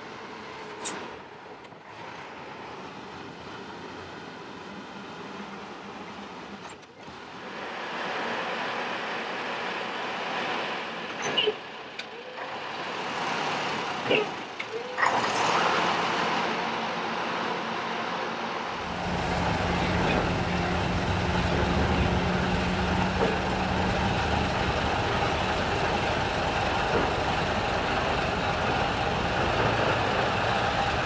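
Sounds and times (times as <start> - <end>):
crane engine running: 7.2 - 31.0.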